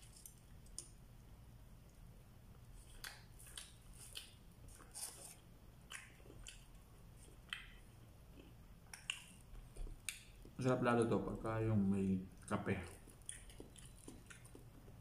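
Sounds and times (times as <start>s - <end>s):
person chewing and lip smacking: 2.6s - 10.6s, 12.3s - 15.0s.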